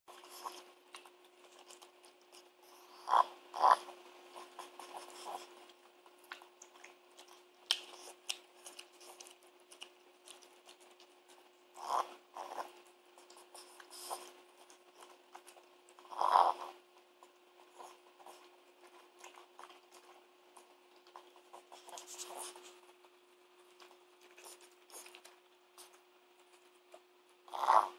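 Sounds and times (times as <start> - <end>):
dog chewing and smacking: 0.1 - 27.9
dog grunting: 2.9 - 3.9, 11.8 - 12.7, 16.1 - 16.8, 27.5 - 27.9.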